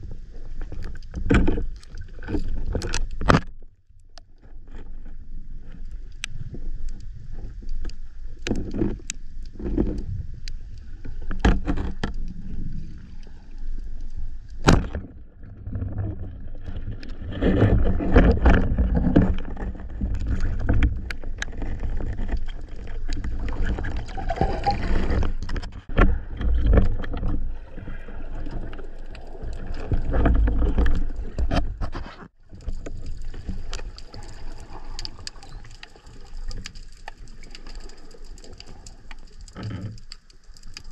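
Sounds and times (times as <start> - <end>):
underwater rush of water: 5.0 - 31.6, 32.4 - 40.9.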